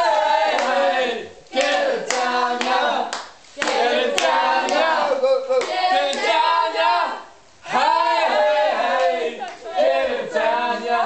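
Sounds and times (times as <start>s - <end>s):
group of people chanting: 0.0s - 11.0s
hand clapping: 0.5s - 0.8s, 1.5s - 4.9s, 5.5s - 6.4s.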